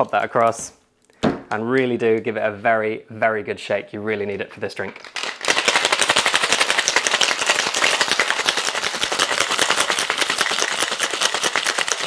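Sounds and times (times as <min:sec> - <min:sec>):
ice rattling in cocktail shaker: 0:05.0 - 0:12.0.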